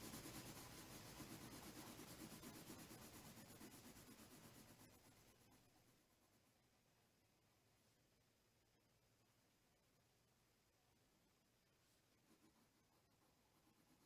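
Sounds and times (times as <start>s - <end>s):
pencil shading on paper: 0.0s - 6.9s, 11.6s - 14.0s.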